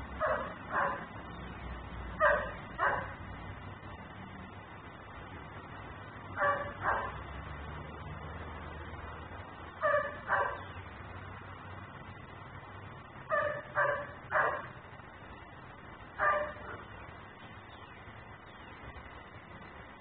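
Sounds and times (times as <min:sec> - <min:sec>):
dog barking: 0:00.2 - 0:01.1, 0:02.2 - 0:03.2, 0:06.4 - 0:07.2, 0:09.8 - 0:10.7, 0:13.3 - 0:14.7, 0:16.2 - 0:16.9.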